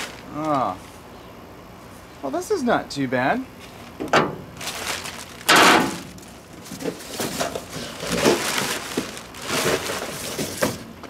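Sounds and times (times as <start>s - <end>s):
cardboard and packing material rustling: 0.0s - 0.9s, 4.6s - 10.9s.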